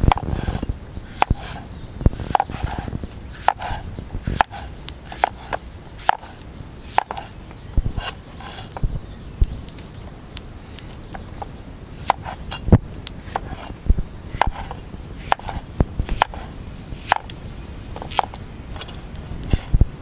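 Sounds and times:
knife chopping on board: 2.3s - 7.3s, 14.4s - 17.3s.

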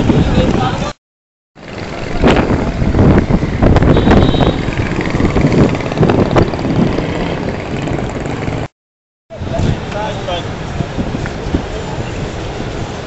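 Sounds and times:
wind rumbling on microphone: 0.0s - 1.0s, 1.6s - 8.7s, 9.3s - 13.0s
passing motor traffic: 1.6s - 8.7s.

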